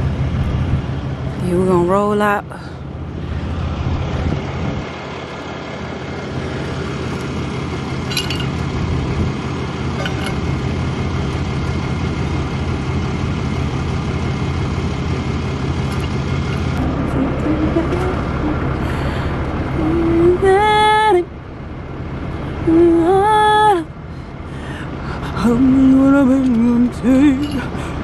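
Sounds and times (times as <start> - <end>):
vehicle engine idling: 0.0 - 28.0
wrench clinking on metal: 8.1 - 8.6, 10.0 - 10.5, 27.4 - 27.7.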